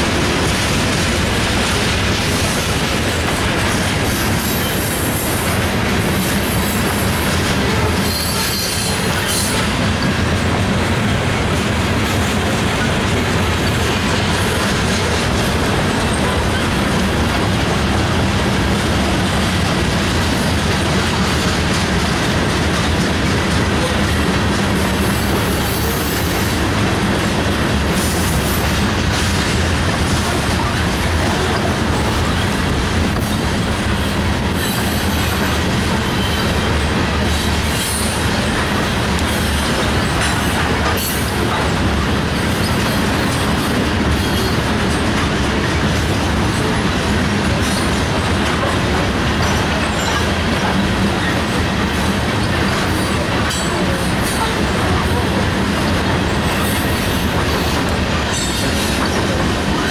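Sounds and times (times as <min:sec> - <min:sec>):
freight train wheels rumbling: 0:00.0 - 0:59.9
wheels clicking over rail joints: 0:00.0 - 0:59.9.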